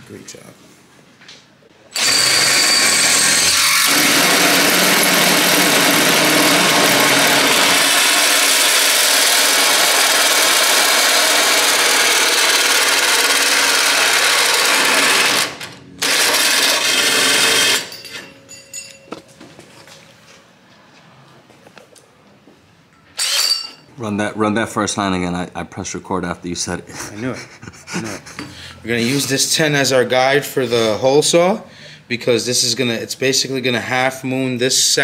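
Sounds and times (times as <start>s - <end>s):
cordless drill cutting through steel: 1.9s - 18.2s, 23.2s - 23.6s.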